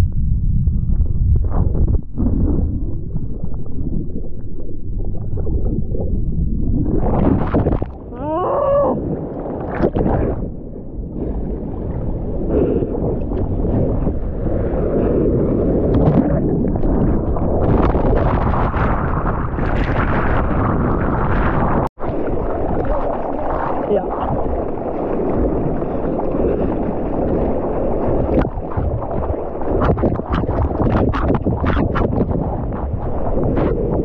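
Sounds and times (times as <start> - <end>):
muffled underwater surf rumble: 0.0 - 34.0
water rushing against housing: 15.8 - 32.1.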